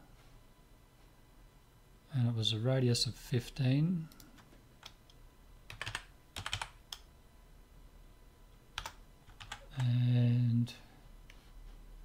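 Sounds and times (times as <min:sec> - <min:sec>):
computer keyboard typing: 0:05.7 - 0:07.1, 0:08.8 - 0:09.9.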